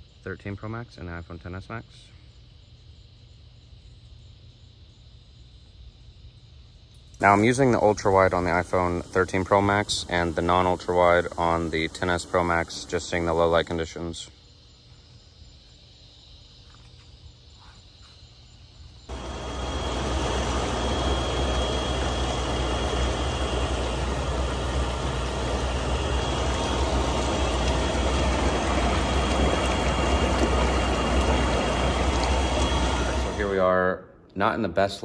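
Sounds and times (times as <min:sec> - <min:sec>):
faint outdoor ambience: 0:00.0 - 0:35.0
air blower humming: 0:07.2 - 0:13.8, 0:19.1 - 0:33.7
water churning and bubbling: 0:19.1 - 0:33.6.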